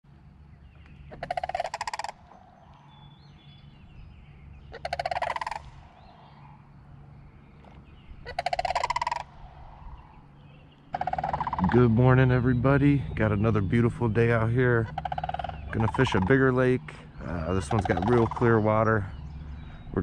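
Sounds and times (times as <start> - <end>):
faint bird chirps: 0.4 - 20.0
turkey gobbling: 1.1 - 3.1, 4.6 - 6.7, 8.2 - 10.2, 10.9 - 12.4, 14.4 - 19.1.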